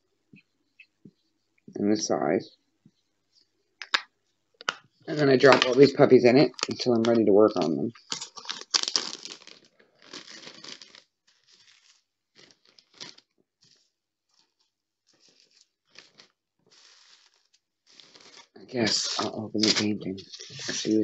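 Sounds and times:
plastic bags crinkling: 0:05.1 - 0:21.0.

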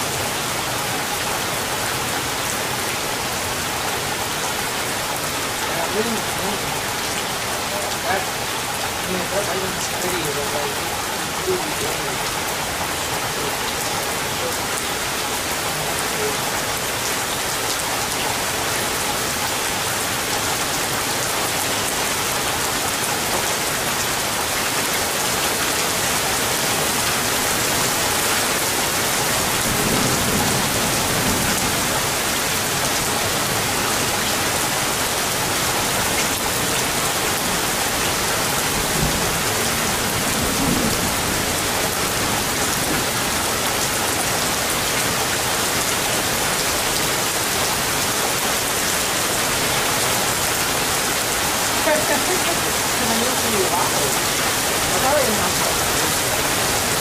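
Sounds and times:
rain falling steadily: 0:00.0 - 0:57.0.

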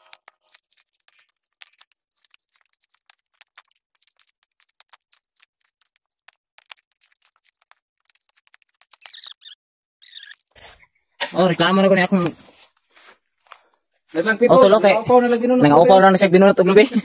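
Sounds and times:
coconut husk cracking and ripping: 0:00.0 - 0:09.1.

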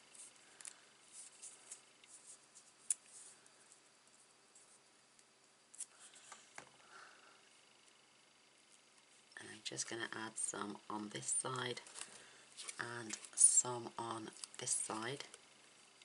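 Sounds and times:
tape scratching and ticking: 0:00.1 - 0:03.3.

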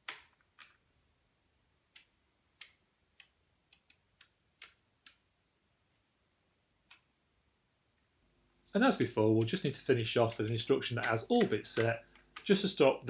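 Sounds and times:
sharp relay clicks: 0:08.9 - 0:12.7.

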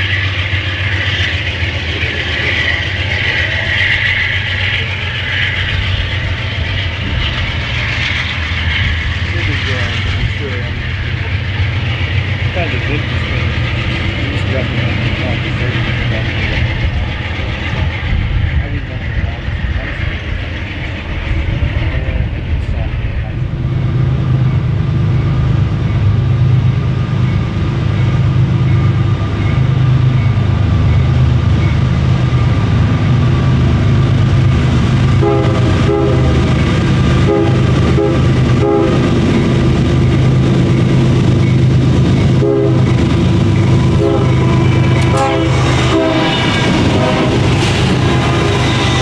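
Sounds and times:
diesel locomotive engine drone: 0:00.0 - 0:49.0
crossing bell ringing: 0:27.2 - 0:31.9
locomotive horn blasts: 0:35.2 - 0:36.4, 0:37.2 - 0:39.1, 0:42.4 - 0:42.9, 0:43.9 - 0:47.6.

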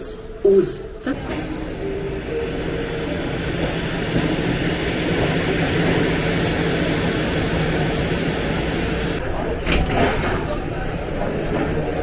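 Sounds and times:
electric train running: 0:01.1 - 0:09.6.

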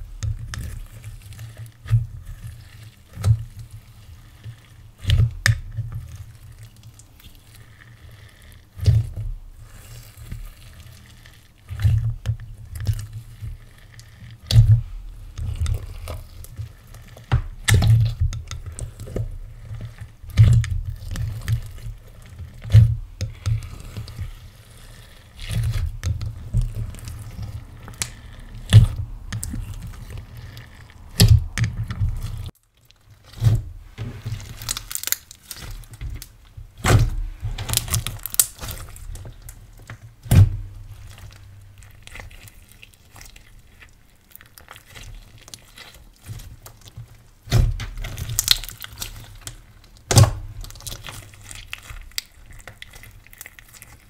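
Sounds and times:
slime squishing: 0:00.0 - 0:54.0
slime popping: 0:37.7 - 0:46.8, 0:47.4 - 0:54.0.

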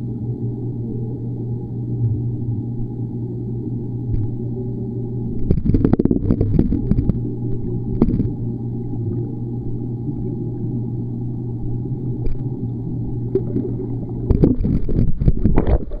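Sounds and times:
underwater low hum: 0:00.0 - 0:16.0
underwater knocks and clicks: 0:04.1 - 0:04.4, 0:05.4 - 0:08.4, 0:12.1 - 0:12.5, 0:13.2 - 0:16.0.

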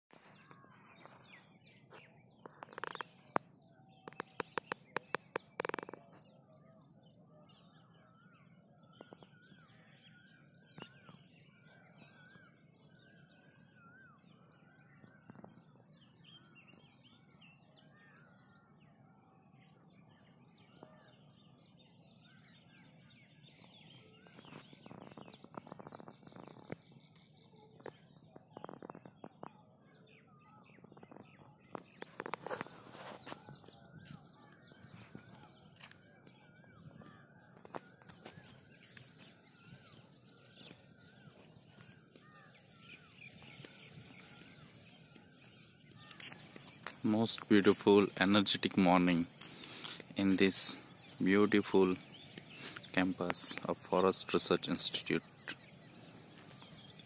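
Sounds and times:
small birds chirping: 0:00.0 - 0:57.0
sharp clicks: 0:04.1 - 0:06.0.

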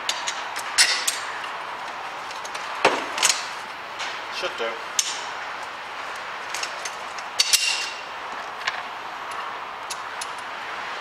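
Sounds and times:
steel parts knocking and clinking: 0:06.5 - 0:08.0.

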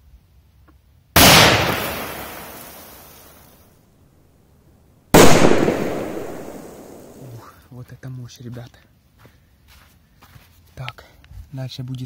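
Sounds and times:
firecracker bang: 0:01.2 - 0:03.4, 0:05.2 - 0:07.2.

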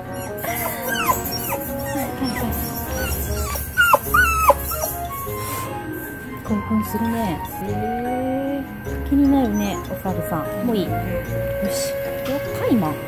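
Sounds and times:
dog whining and yipping: 0:00.0 - 0:07.6.

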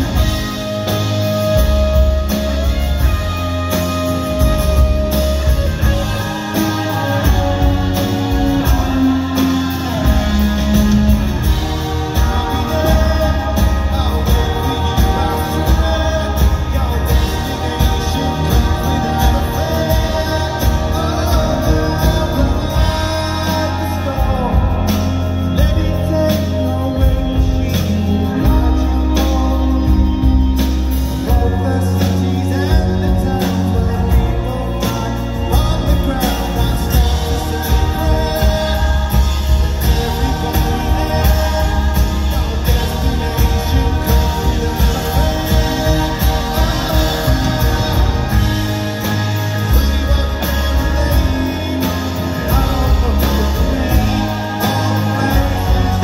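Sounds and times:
acoustic guitar: 0:00.0 - 0:56.0
bass guitar: 0:00.0 - 0:56.0
drums: 0:00.0 - 0:56.0
electric guitar: 0:00.0 - 0:56.0
person singing: 0:00.0 - 0:56.0.

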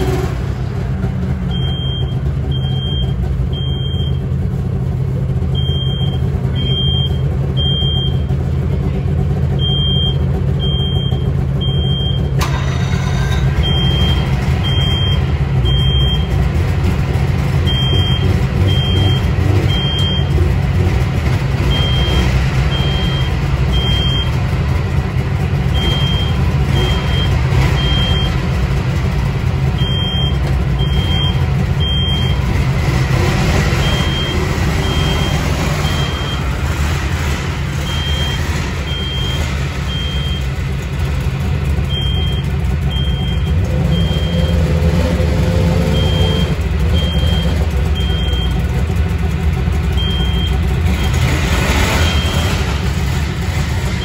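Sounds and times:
reverse warning beeper: 0:01.5 - 0:04.3, 0:05.6 - 0:08.4, 0:09.5 - 0:16.4, 0:17.6 - 0:20.4, 0:21.6 - 0:24.4, 0:25.7 - 0:28.6, 0:29.6 - 0:32.5, 0:33.1 - 0:40.8, 0:41.8 - 0:48.8, 0:49.9 - 0:52.8.

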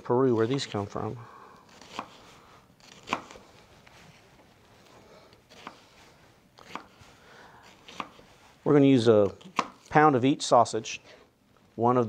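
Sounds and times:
knife cutting onion on board: 0:00.4 - 0:00.8, 0:01.7 - 0:03.6, 0:05.5 - 0:08.4, 0:09.2 - 0:09.9.

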